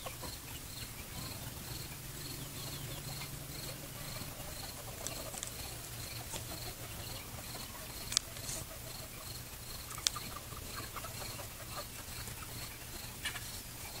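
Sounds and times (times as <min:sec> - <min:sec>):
cricket chirping: 0:00.0 - 0:14.0
low steady hum: 0:00.0 - 0:14.0
sharp clicks: 0:08.0 - 0:08.5, 0:09.9 - 0:10.3.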